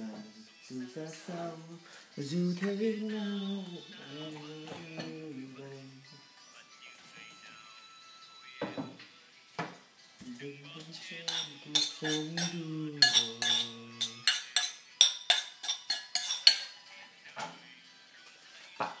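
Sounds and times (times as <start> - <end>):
spoon clinking against bowl: 11.2 - 16.8.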